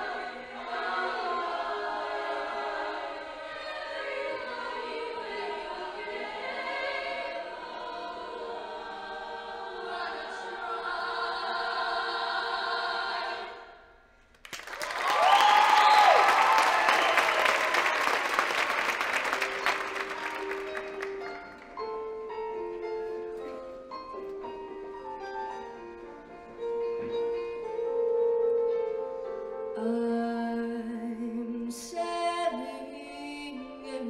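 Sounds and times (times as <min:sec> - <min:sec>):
choir singing in harmony: 0:00.0 - 0:14.1
audience applause and cheering: 0:14.4 - 0:21.7.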